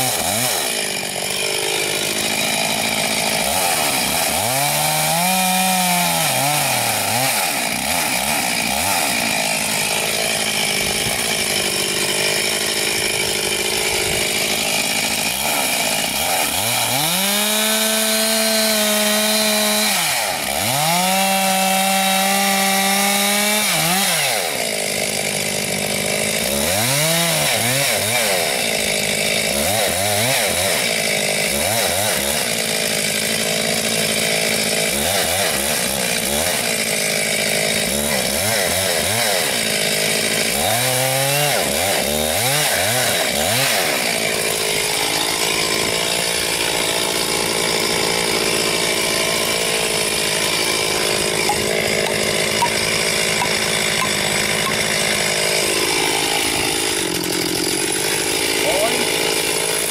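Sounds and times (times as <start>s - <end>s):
chainsaw engine revving: 0.0s - 59.9s.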